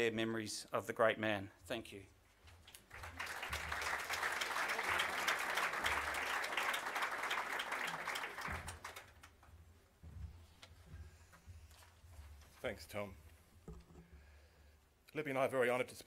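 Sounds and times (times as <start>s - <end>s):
audience applauding: 2.7s - 9.5s.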